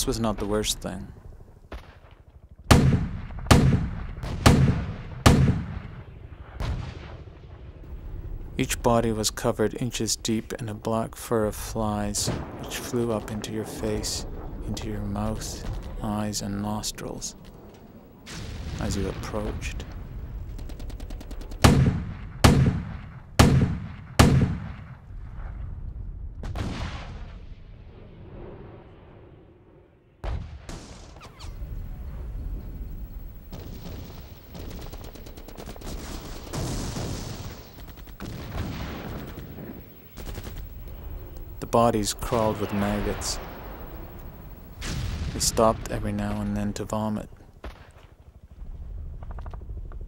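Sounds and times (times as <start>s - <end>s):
artillery blasts: 0.0s - 10.1s, 11.5s - 50.0s
gunshots with booming echo: 0.0s - 50.0s
dull blast: 35.8s - 46.2s.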